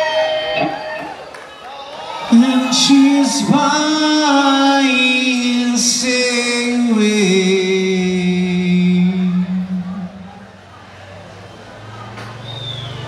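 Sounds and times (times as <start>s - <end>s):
man singing rock live: 2.3s - 10.4s.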